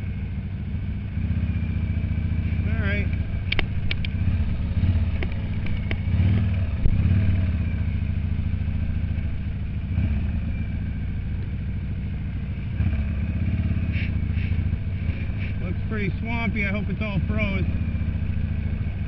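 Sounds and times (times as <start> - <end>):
motorcycle engine running: 0.0 - 19.0
sharp clicks: 3.1 - 4.4, 5.0 - 7.0.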